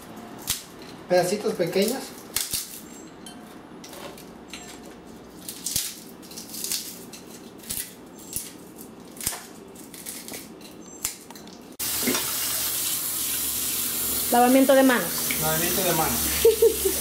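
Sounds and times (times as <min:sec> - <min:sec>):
crackling snaps and crunches: 0:01.7 - 0:02.9, 0:05.4 - 0:11.6
running tap water: 0:11.8 - 0:17.0.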